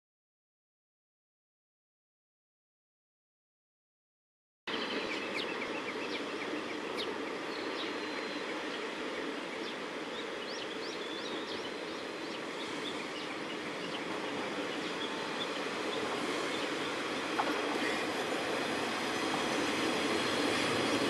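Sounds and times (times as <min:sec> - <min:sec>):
distant diesel railcar: 0:04.7 - 0:21.0
small birds chirping: 0:04.7 - 0:21.0
steady outdoor rumble: 0:12.1 - 0:20.8.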